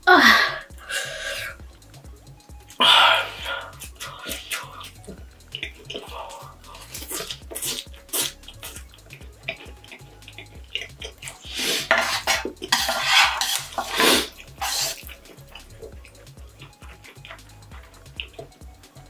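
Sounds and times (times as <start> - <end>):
chewing clicks: 3.8 - 11.4, 14.3 - 18.6
utensils scraping frying pan: 5.6 - 8.8, 9.5 - 18.4.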